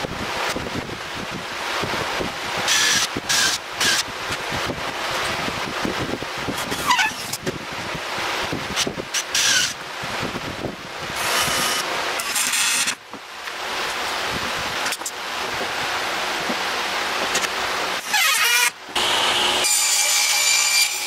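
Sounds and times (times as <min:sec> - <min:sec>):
wind on microphone: 0:00.0 - 0:13.0, 0:14.1 - 0:16.6
cordless drill driving screws: 0:02.7 - 0:04.0, 0:11.2 - 0:13.0.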